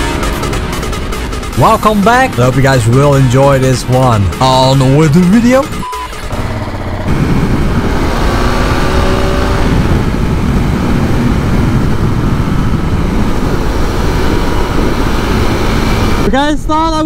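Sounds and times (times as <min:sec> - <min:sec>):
motorcycle engine running: 0:00.0 - 0:16.3
wind noise on microphone: 0:05.8 - 0:17.0.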